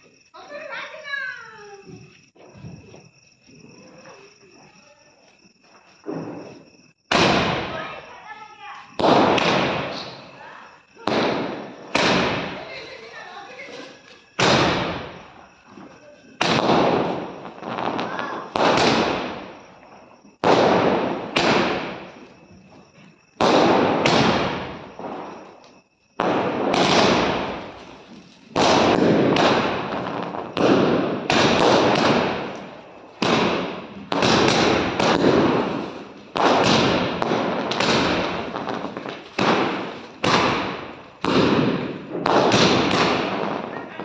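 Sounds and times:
aerial fireworks banging: 6.0 - 8.1, 9.0 - 10.3, 11.0 - 13.6, 14.4 - 15.3, 16.4 - 19.7, 20.3 - 22.2, 23.3 - 25.5, 26.2 - 44.0.

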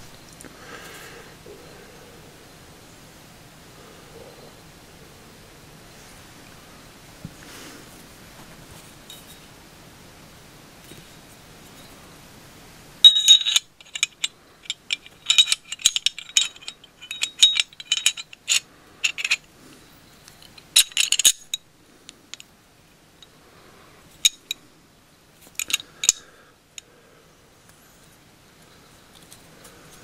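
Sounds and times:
metal gun parts clicking: 13.0 - 19.5, 20.3 - 21.6, 24.2 - 24.6, 25.5 - 26.2.

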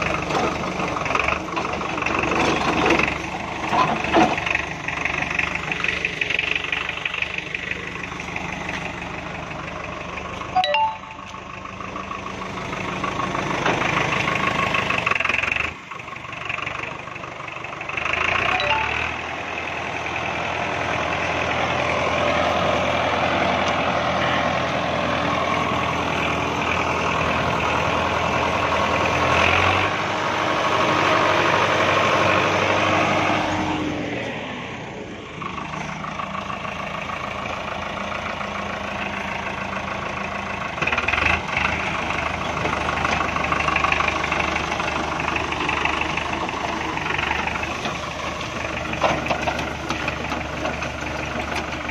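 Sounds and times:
tractor diesel engine under load: 0.0 - 51.9.

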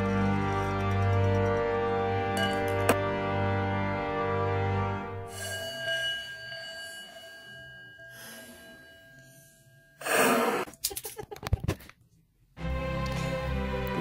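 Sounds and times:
bell-like chime: 2.4 - 2.9, 5.3 - 10.1.

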